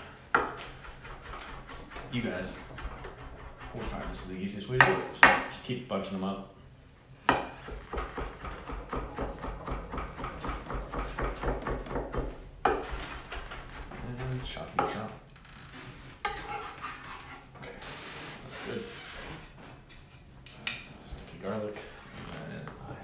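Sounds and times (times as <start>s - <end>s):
knife chopping on wooden board: 7.3s - 15.0s.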